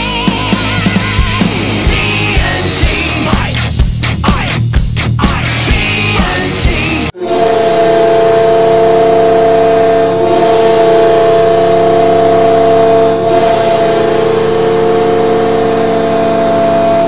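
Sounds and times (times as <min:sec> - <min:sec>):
goal horn steady chord: 0:05.8 - 0:17.0.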